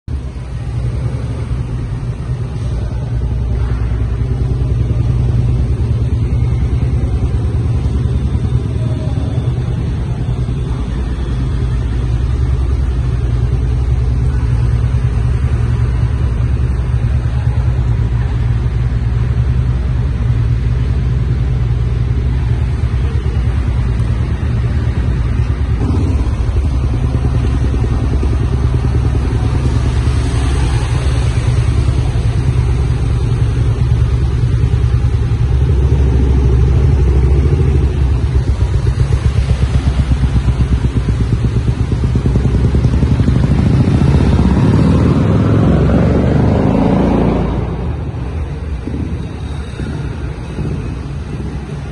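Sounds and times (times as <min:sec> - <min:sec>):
vehicles rumbling in underpass: 0:00.0 - 0:51.9
scooter splashing through water: 0:26.1 - 0:33.9.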